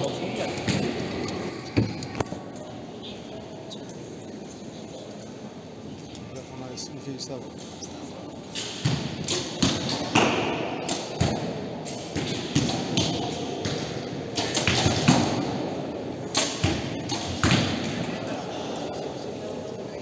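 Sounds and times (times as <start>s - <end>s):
arrows striking targets: 8.5s - 18.1s.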